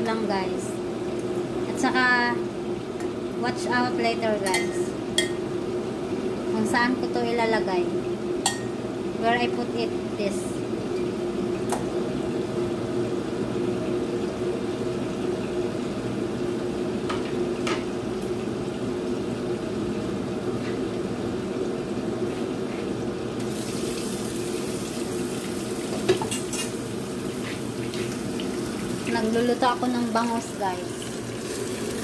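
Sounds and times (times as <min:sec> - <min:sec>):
fish frying in pan: 0:23.4 - 0:32.0.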